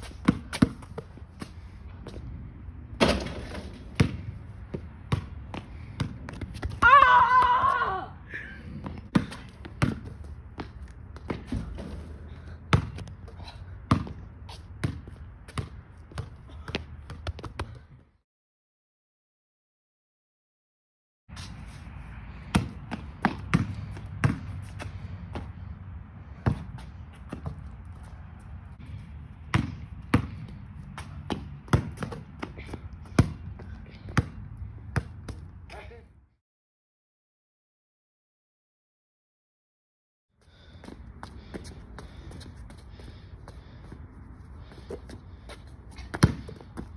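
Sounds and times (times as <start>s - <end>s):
basketball bouncing on pavement: 0.0s - 7.8s, 8.7s - 18.0s, 22.3s - 35.9s, 40.5s - 44.0s, 44.6s - 46.9s.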